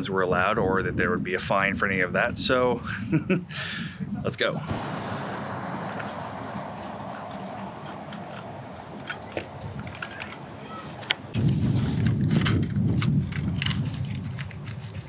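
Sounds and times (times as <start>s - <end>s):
low rumble on microphone: 0.0s - 15.0s
handling clicks and rustles: 4.7s - 15.0s.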